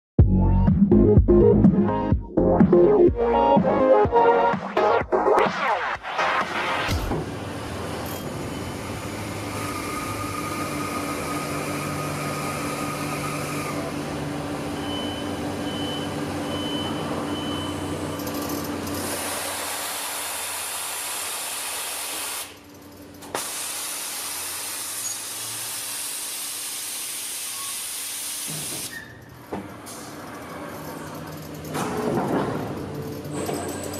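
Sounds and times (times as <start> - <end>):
industrial machine hum: 5.8 - 26.1, 29.2 - 33.9
short beeps: 14.8 - 18.3.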